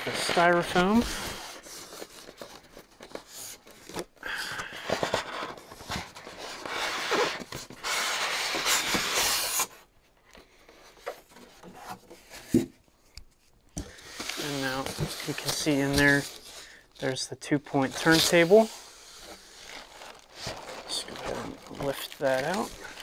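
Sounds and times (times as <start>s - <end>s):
styrofoam scraping against cardboard: 5.0s - 9.8s, 18.0s - 23.0s.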